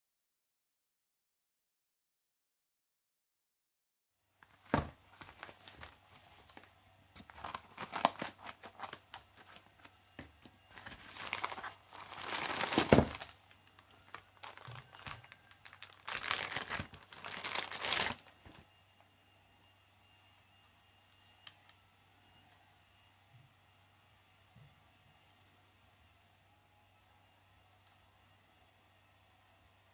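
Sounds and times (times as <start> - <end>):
faint plastic handling: 4.4 - 18.6
plastic bag crinkling: 4.4 - 18.6
envelope tearing: 4.6 - 9.9, 10.7 - 18.5.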